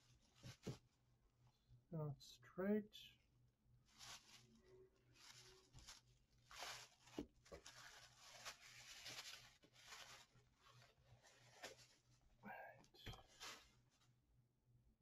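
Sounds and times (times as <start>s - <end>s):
plastic bag rustling: 3.8s - 12.3s, 13.2s - 14.0s.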